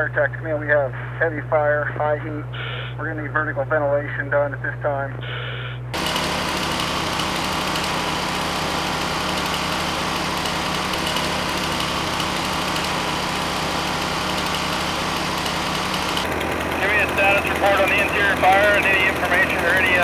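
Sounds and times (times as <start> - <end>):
fire truck engine: 0.0 - 20.0
portable generator running: 0.0 - 20.0
chainsaw running: 5.9 - 20.0.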